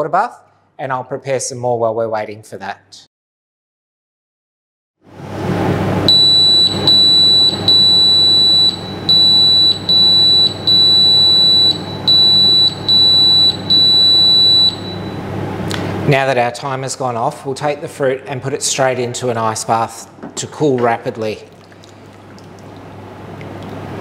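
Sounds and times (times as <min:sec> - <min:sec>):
low steady hum: 0:05.2 - 0:24.0
timer alarm beeping: 0:06.1 - 0:15.2.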